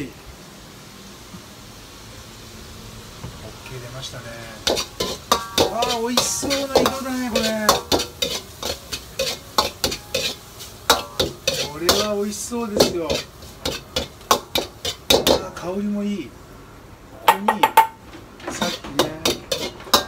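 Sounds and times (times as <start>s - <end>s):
oil sizzling in a pan: 0.0s - 20.0s
metal utensil scraping a pan: 4.6s - 15.5s, 18.4s - 20.0s.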